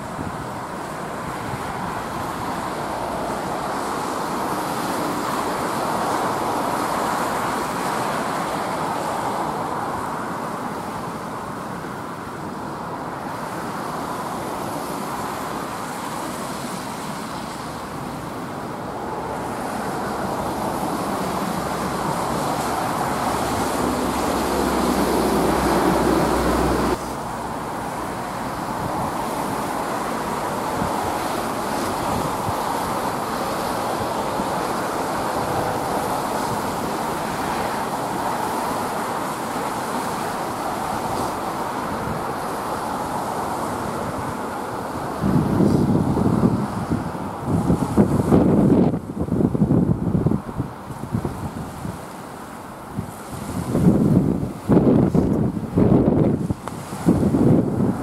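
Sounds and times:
wind over water: 0:00.0 - 0:58.0.

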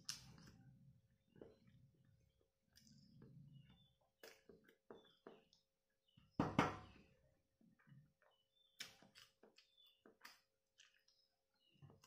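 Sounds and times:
man chewing: 0:07.8 - 0:11.4.

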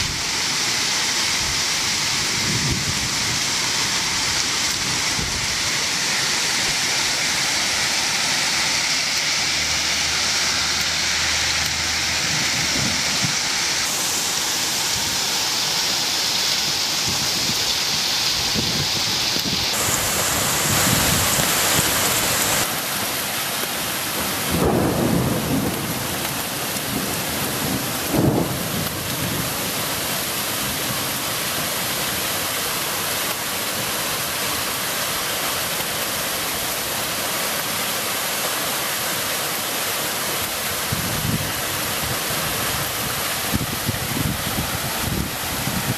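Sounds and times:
heavy rain pouring: 0:00.0 - 0:45.9
thunder rumbles: 0:24.2 - 0:29.6.

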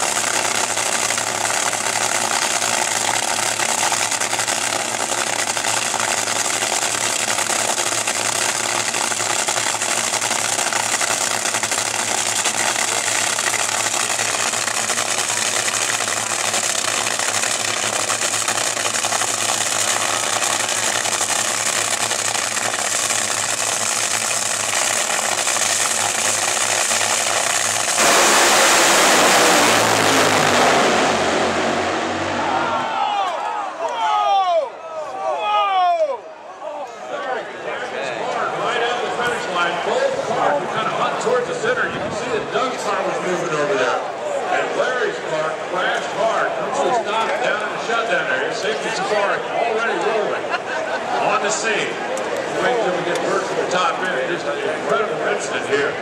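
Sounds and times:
dragster engines idling: 0:00.0 - 0:32.9
dragsters launching at full throttle: 0:00.0 - 0:33.4, 0:38.4 - 0:56.0.

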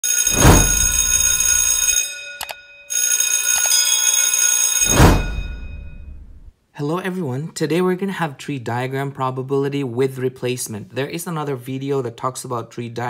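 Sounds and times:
bell-like ringing tones: 0:00.0 - 0:06.4
whoosh: 0:00.3 - 0:01.2, 0:04.9 - 0:06.5.

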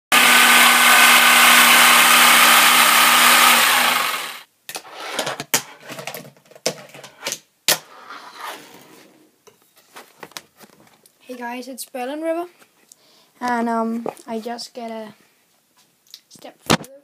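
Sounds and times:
jigsaw cutting a board: 0:00.1 - 0:04.5.

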